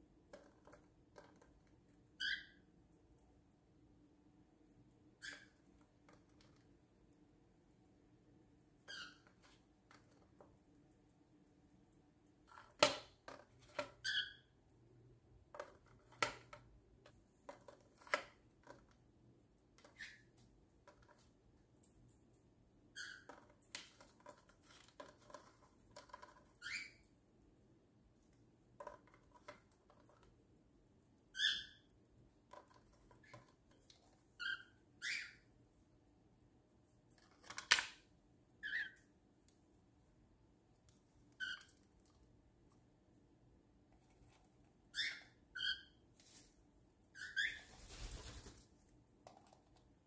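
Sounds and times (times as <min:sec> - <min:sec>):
bird chirps: 0:34.4 - 0:35.4.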